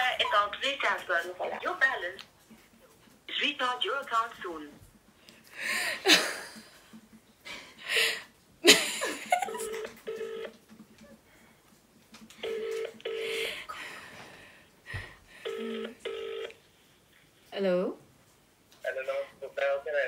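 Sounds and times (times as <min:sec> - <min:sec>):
telephone ringback tone: 0:09.5 - 0:10.6, 0:12.4 - 0:13.5, 0:15.4 - 0:16.6.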